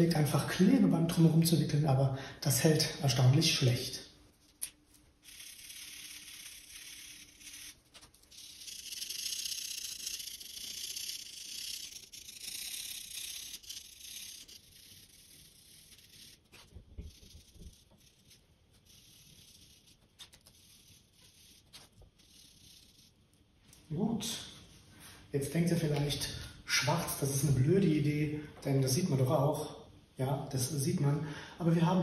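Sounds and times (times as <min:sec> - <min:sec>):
marker scratching on lampshade: 0:05.1 - 0:23.4.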